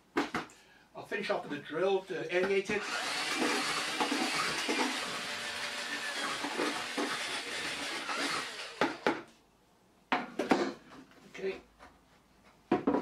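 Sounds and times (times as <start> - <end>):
drill with paddle mixer whirring: 2.8 - 9.2
sharp knocks and clatters: 12.7 - 13.0.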